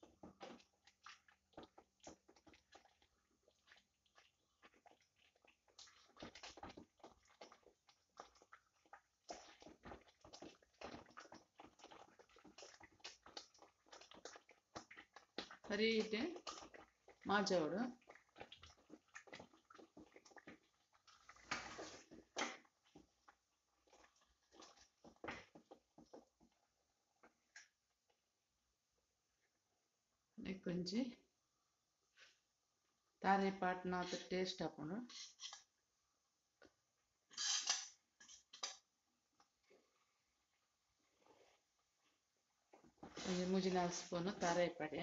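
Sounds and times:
spatula squelching in dough: 0.0s - 26.4s, 42.7s - 45.0s
spatula scraping a steel pot: 35.0s - 35.6s, 37.3s - 38.7s.

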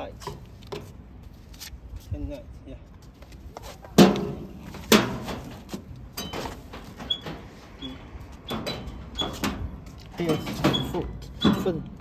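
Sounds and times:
tricycle body knocking and clattering: 3.9s - 7.5s.

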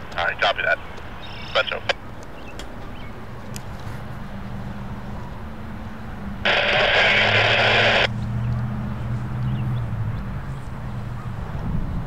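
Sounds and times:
radio static hiss: 0.2s - 2.0s, 6.4s - 8.1s
steady low hum: 6.4s - 8.1s.

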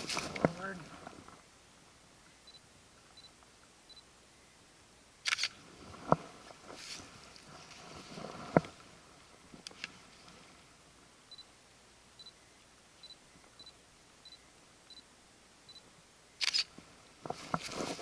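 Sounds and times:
camera handling rustling: 9.6s - 10.0s, 16.4s - 18.0s.

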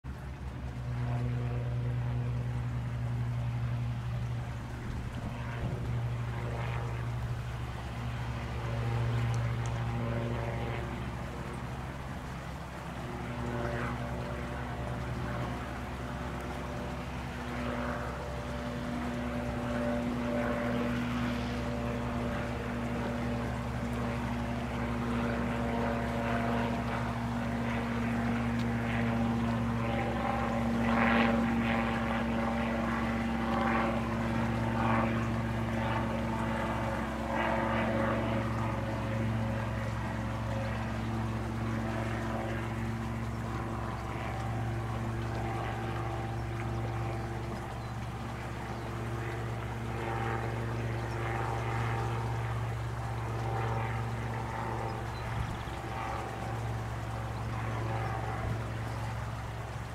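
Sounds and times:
small plane engine droning: 0.0s - 59.9s.

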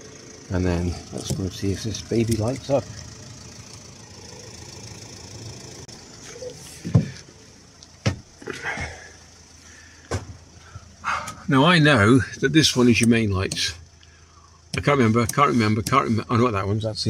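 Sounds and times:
footsteps inside a van: 5.8s - 11.5s
handling knocks: 6.8s - 7.3s, 8.0s - 8.3s.

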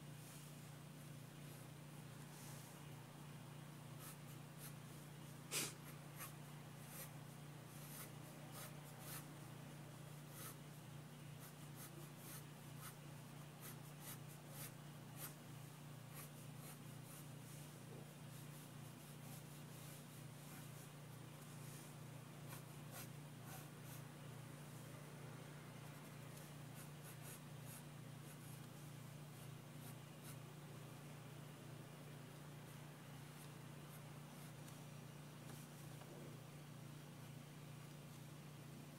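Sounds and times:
faint low hum: 0.0s - 38.9s
pencil scratching on paper: 4.0s - 5.0s, 5.8s - 9.3s, 10.0s - 10.7s, 11.4s - 24.1s, 26.4s - 30.4s.

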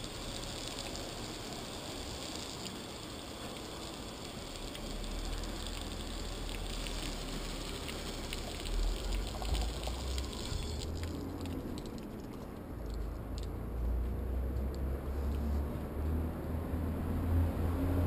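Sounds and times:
shower water splashing on person: 0.0s - 12.3s.

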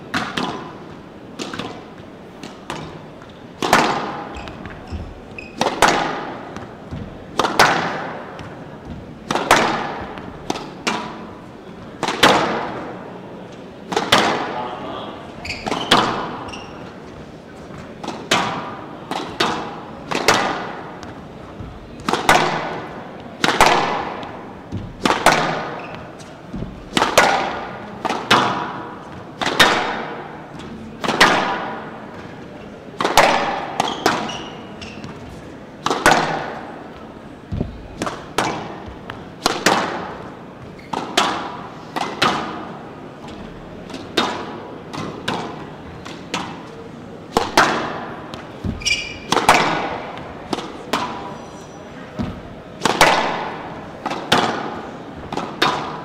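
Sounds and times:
squash racket striking ball: 0.0s - 13.0s, 13.8s - 14.6s, 15.4s - 32.4s, 33.0s - 51.4s, 52.1s - 56.0s
ball smacking front wall: 5.6s - 11.2s, 18.0s - 30.3s, 37.5s - 40.3s, 52.2s - 56.0s.

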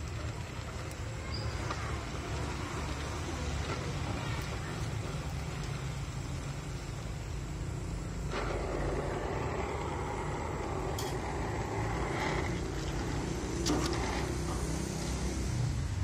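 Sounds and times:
welding torch flame hissing: 0.0s - 16.0s
low rumble: 6.1s - 14.2s.

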